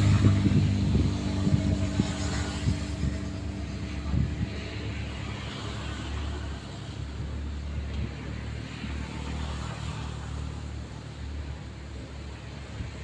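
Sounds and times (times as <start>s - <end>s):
diesel engine rumbling under load: 0.0s - 9.3s.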